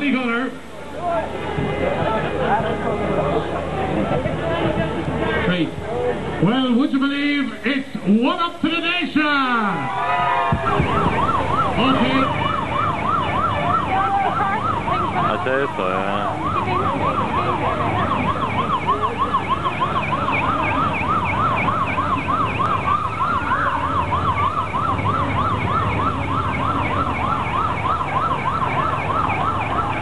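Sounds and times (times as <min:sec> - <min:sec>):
murmur of crowd: 0:00.0 - 0:30.0
motorcycle siren yelping: 0:10.0 - 0:30.0.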